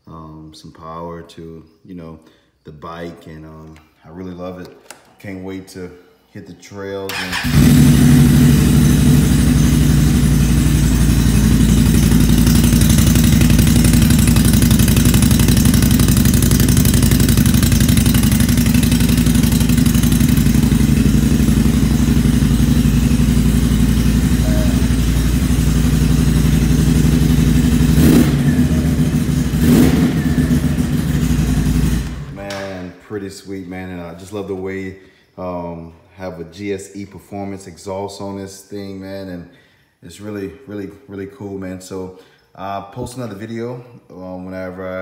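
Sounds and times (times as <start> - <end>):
atv engine running: 7.1 - 32.4
engine blips: 7.1 - 32.7.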